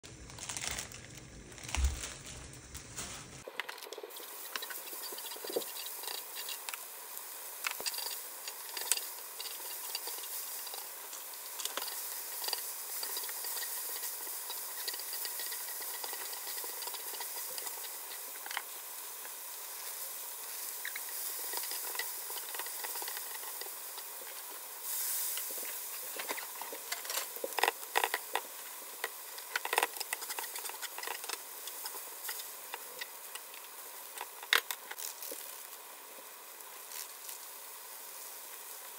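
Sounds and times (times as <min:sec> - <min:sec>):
food sizzling on a griddle: 0:02.6 - 0:38.9
chopsticks tapping and scraping plate: 0:26.2 - 0:33.1.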